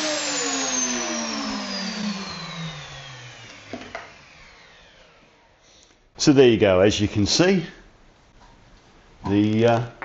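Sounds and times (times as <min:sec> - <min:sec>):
router motor winding down: 0:00.0 - 0:05.6.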